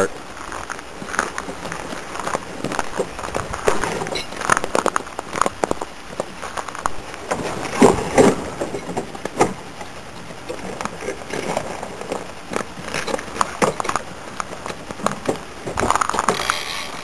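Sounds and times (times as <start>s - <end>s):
footsteps crunching on snow: 0.0s - 9.4s
wind hiss on microphone: 0.0s - 17.0s.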